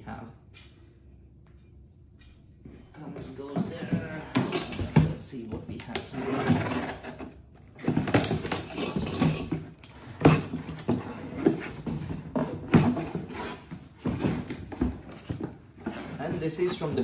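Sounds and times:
cardboard scraping and rustling: 0:05.8 - 0:17.0
knife cutting cardboard: 0:06.0 - 0:11.8, 0:12.4 - 0:14.5.

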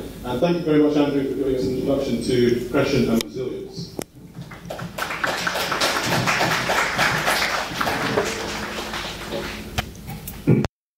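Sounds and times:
audience applauding: 0:04.2 - 0:09.9.

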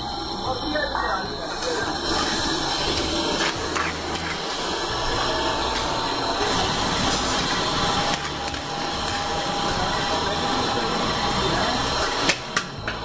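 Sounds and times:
kitchen background roar: 0:00.0 - 0:13.0.

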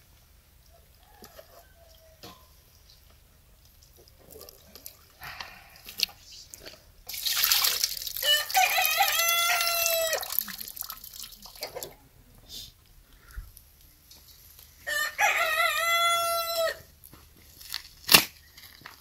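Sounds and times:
rooster crowing: 0:01.0 - 0:02.4, 0:08.2 - 0:10.2, 0:14.8 - 0:16.9
water dripping: 0:02.7 - 0:12.0
water splashing into steel basin: 0:07.0 - 0:12.0.

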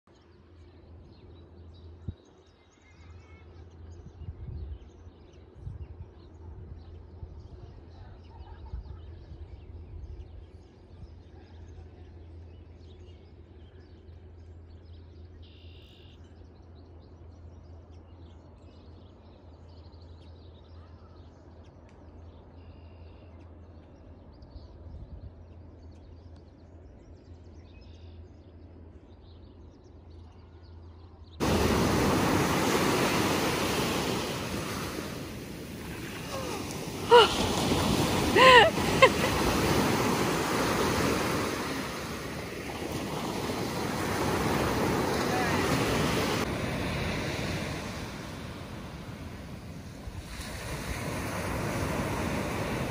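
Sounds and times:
waves breaking on shore: 0:31.4 - 0:52.9.

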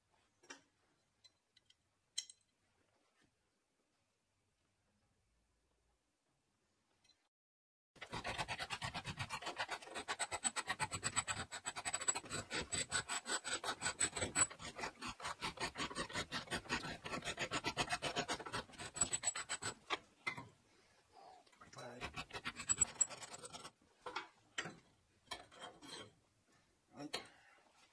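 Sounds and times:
hand file rasping on steel: 0:08.0 - 0:20.0, 0:21.8 - 0:23.8.

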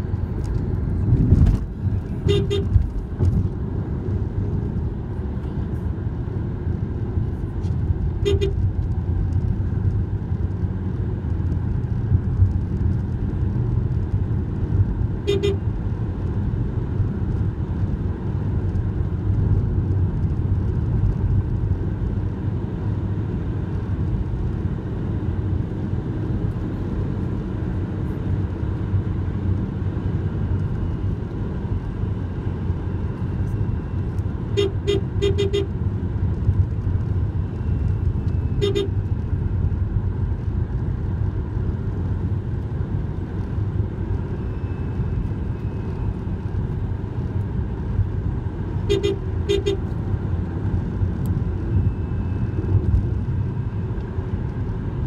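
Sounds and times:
car engine and road noise: 0:00.0 - 0:55.0
car horn toots: 0:02.2 - 0:02.8, 0:08.2 - 0:08.7, 0:15.2 - 0:15.6, 0:34.5 - 0:35.8, 0:38.4 - 0:39.0, 0:48.8 - 0:50.0.

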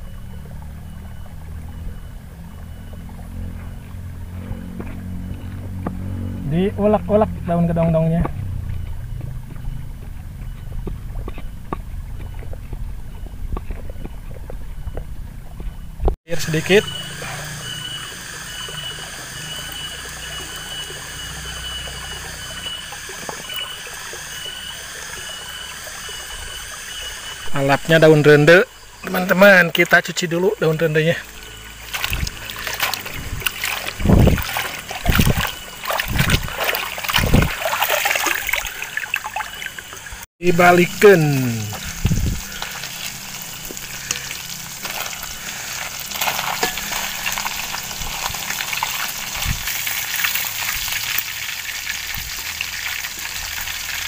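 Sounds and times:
leaves splashing in water: 0:29.0 - 0:40.0, 0:40.6 - 0:54.0
stream rushing: 0:31.8 - 0:40.0.

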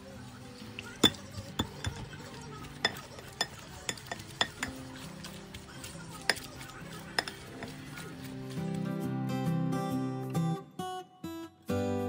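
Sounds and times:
quiet background music: 0:00.0 - 0:12.0
masher clinking on glass bowl: 0:01.0 - 0:02.2, 0:02.8 - 0:04.9, 0:06.2 - 0:07.8.

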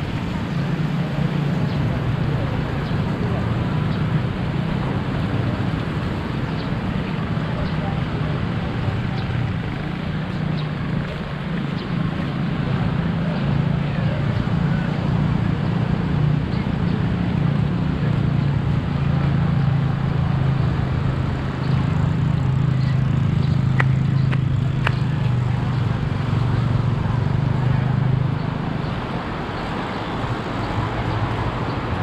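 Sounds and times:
motorcycle engine running: 0:00.0 - 0:32.0
road and wind noise: 0:00.0 - 0:32.0.

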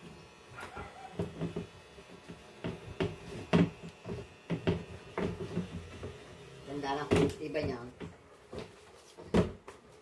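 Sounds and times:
knocks and clicks of cabinet parts: 0:02.6 - 0:06.2, 0:07.1 - 0:09.8.

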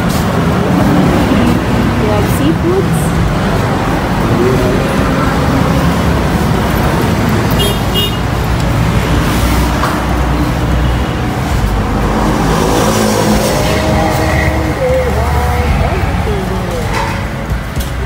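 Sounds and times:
traffic rumble: 0:00.0 - 0:18.0.

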